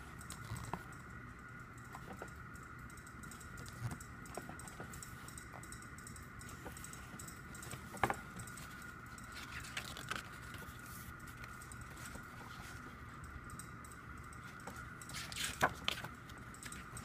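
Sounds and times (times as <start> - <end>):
faint steady hum: 0.0 - 17.0
page turning: 9.4 - 12.8, 15.2 - 16.2.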